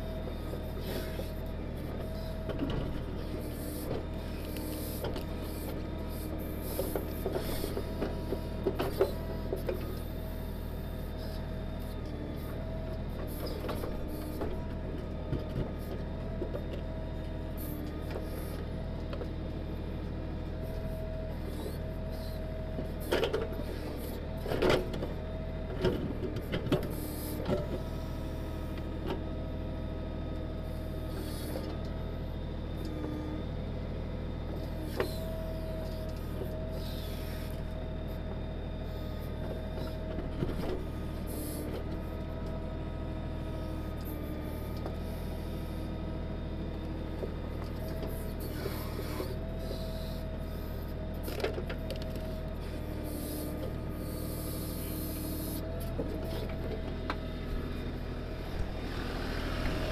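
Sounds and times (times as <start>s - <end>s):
tractor diesel engine running: 0.0s - 59.9s
hydraulic whine: 51.9s - 59.9s.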